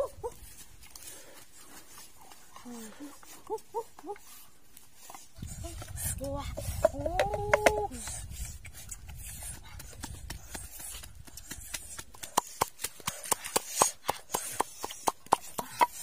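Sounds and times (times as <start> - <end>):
wooden pestle pounding in mortar: 9.6 - 16.0.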